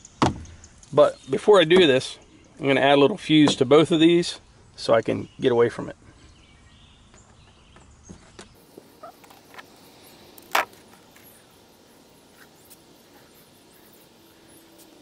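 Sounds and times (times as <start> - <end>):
hands handling fuse and multitool: 8.8 - 11.4.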